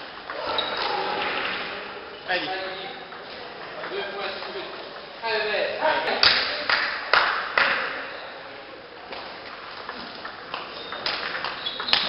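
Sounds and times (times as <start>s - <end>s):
table tennis ball hits: 9.8s - 12.0s.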